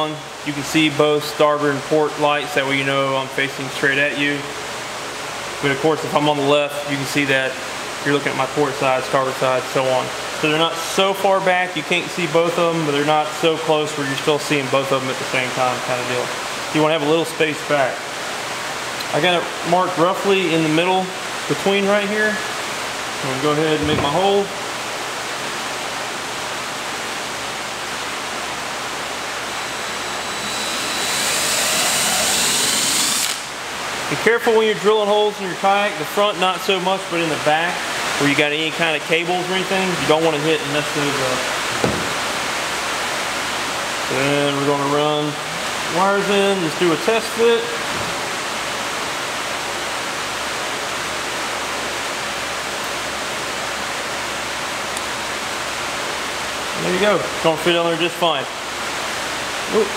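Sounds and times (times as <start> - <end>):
electric fans running: 0.0 - 59.9
cordless drill whining: 30.0 - 33.5.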